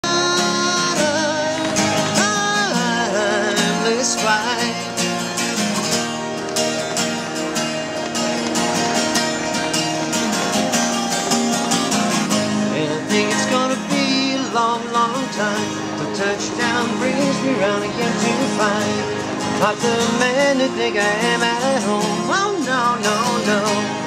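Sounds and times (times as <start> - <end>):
man singing: 0.0 - 5.2, 12.6 - 24.0
strummed twelve-string guitar: 0.0 - 24.0.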